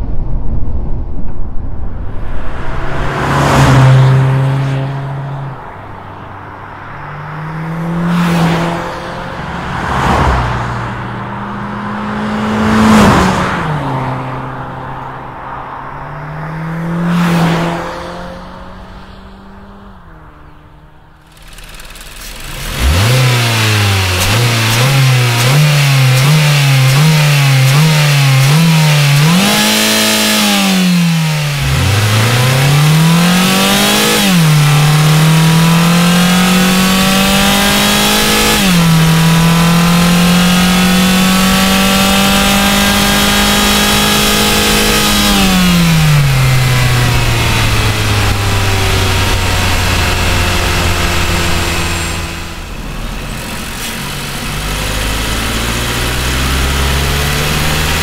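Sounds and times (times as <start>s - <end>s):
car engine revving: 0.0s - 58.0s
engine idling: 21.2s - 25.2s, 46.3s - 58.0s.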